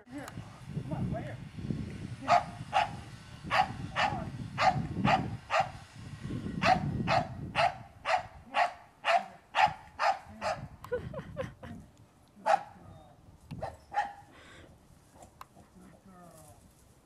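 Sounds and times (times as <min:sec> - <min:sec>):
dog barking: 0:02.3 - 0:05.8, 0:06.6 - 0:10.7, 0:12.4 - 0:12.8, 0:13.6 - 0:14.3.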